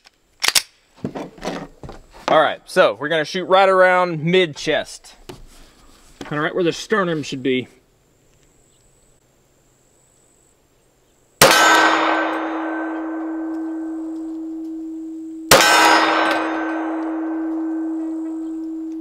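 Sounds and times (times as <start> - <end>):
pistol shots: 11.4 - 14.8, 15.5 - 18.9
steel target ringing: 11.4 - 19.0.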